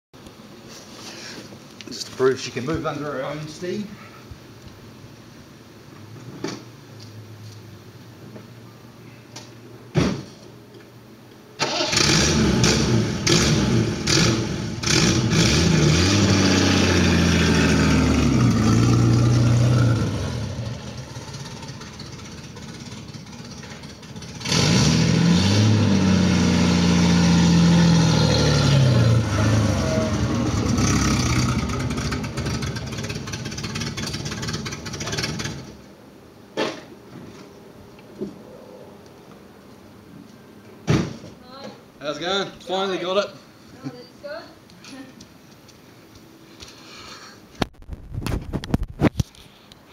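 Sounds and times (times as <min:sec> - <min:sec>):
thump: 0:09.9 - 0:10.4, 0:36.6 - 0:37.3, 0:40.8 - 0:41.4
car engine revving and accelerating: 0:11.8 - 0:21.8, 0:24.2 - 0:35.6.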